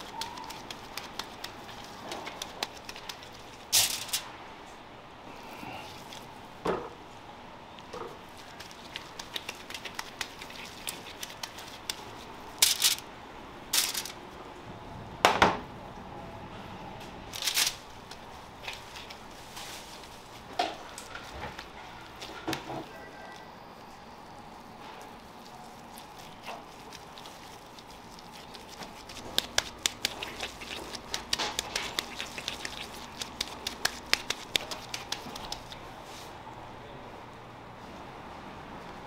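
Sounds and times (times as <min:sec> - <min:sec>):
hands patting minced meat: 0:00.0 - 0:04.0, 0:08.3 - 0:13.0, 0:20.8 - 0:22.9, 0:25.1 - 0:35.9
foil crackling: 0:00.0 - 0:04.3, 0:08.3 - 0:13.0, 0:13.8 - 0:14.2, 0:17.4 - 0:23.0, 0:23.9 - 0:35.9.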